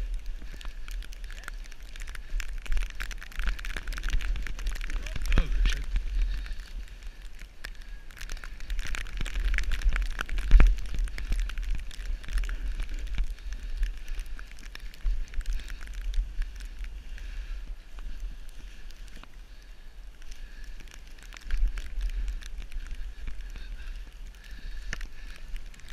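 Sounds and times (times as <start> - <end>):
wind buffeting microphone: 0.0 - 19.2.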